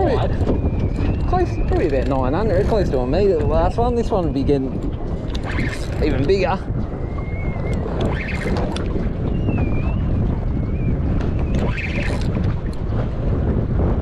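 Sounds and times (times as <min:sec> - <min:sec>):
wind buffeting microphone: 0:00.0 - 0:14.0
scattered clicks: 0:01.2 - 0:02.2
thin wavering whistle: 0:07.0 - 0:12.2.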